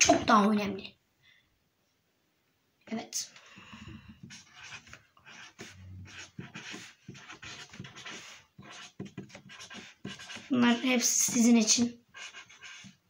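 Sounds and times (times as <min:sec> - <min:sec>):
close breathing: 0:03.3 - 0:04.3
marker rubbing on paper: 0:04.2 - 0:13.0.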